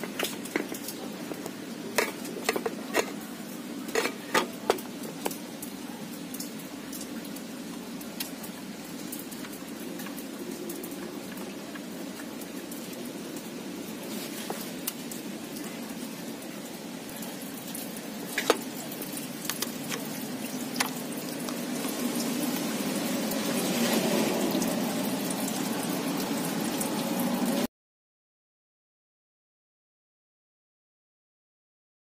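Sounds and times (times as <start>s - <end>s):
coolant pouring into container: 0.0s - 27.7s.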